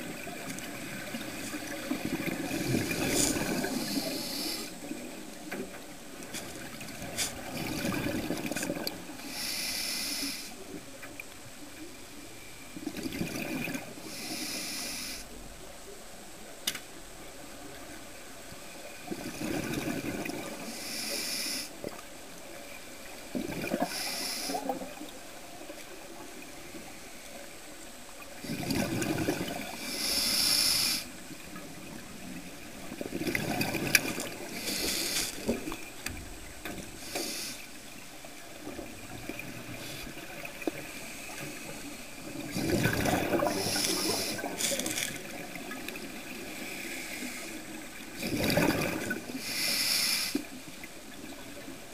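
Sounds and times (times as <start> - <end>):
exhaled bubbles rushing: 0.0 - 4.0, 28.4 - 29.8, 32.8 - 34.6, 42.2 - 46.3, 48.2 - 49.3
regulator inhale hiss: 2.9 - 4.9, 9.2 - 10.6, 14.0 - 15.4, 20.6 - 21.9, 23.8 - 24.9, 29.7 - 31.2, 34.4 - 35.9, 36.9 - 38.1, 43.4 - 45.1, 46.5 - 47.8, 49.3 - 50.6.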